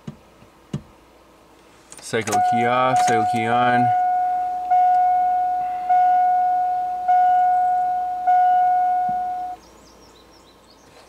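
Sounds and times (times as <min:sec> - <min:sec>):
dashboard warning chime: 0:02.2 - 0:09.6.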